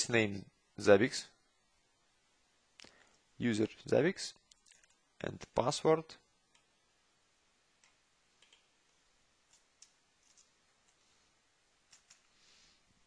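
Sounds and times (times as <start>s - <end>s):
keyboard and mouse clicks: 7.8s - 8.7s, 9.5s - 11.0s, 11.9s - 12.3s.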